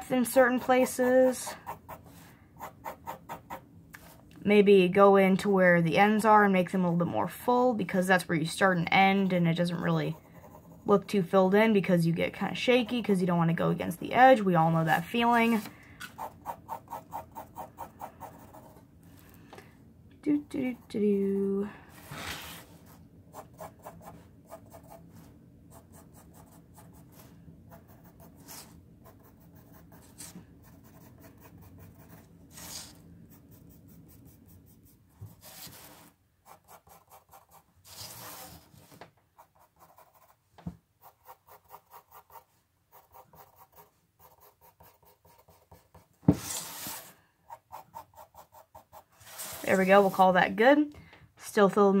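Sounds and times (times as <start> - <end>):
pencil scratching on paper: 0.1 - 4.2, 9.6 - 11.4, 14.9 - 18.8, 22.0 - 40.4, 41.0 - 50.3.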